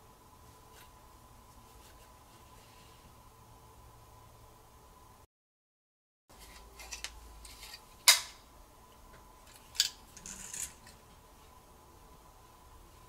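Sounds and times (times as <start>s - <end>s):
phone parts rubbing and scraping: 6.3s - 8.0s, 9.4s - 11.1s.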